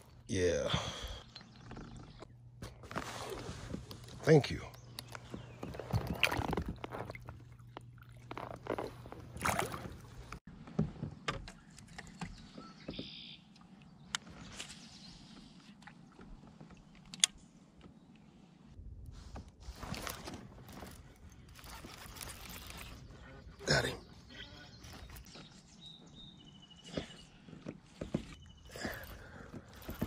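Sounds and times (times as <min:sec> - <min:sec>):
water sloshing around a kayak: 0:05.0 - 0:10.4.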